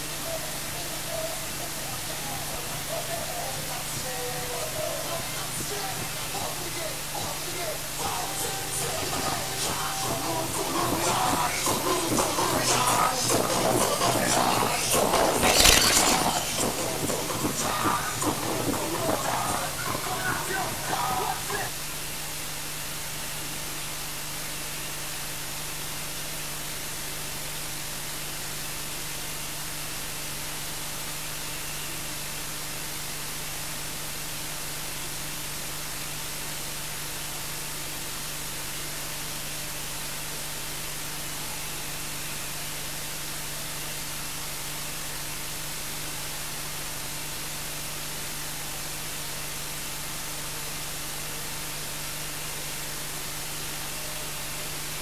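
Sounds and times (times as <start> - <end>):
electronic static hiss: 15.3 - 16.6.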